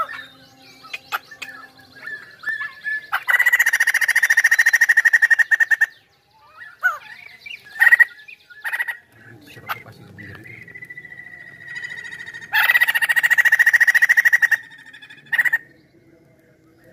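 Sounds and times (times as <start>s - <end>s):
bird calls and whistles: 0.0s - 16.9s.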